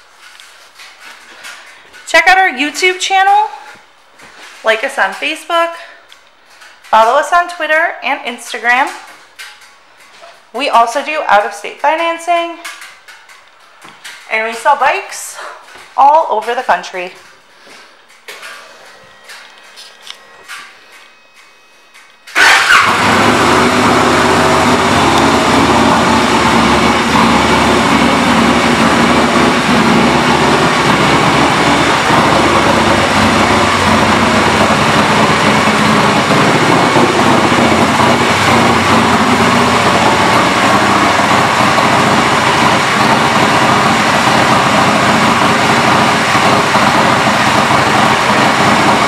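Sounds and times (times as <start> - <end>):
motorcycle engine idling: 22.3 - 49.0.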